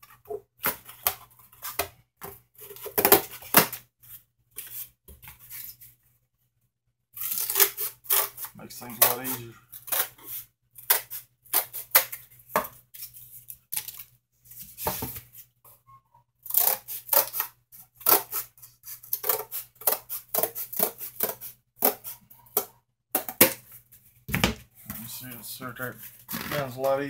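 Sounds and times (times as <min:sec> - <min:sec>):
scissors cutting cardboard: 0:07.2 - 0:12.2, 0:16.5 - 0:22.7.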